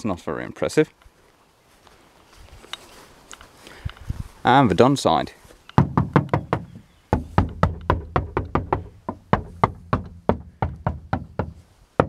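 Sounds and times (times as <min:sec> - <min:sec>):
knuckles knocking on damped metal panel: 0:05.8 - 0:11.6.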